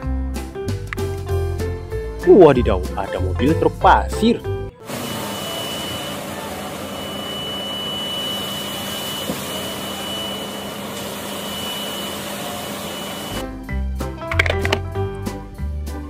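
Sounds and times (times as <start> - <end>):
thin high whine: 4.8 - 13.4.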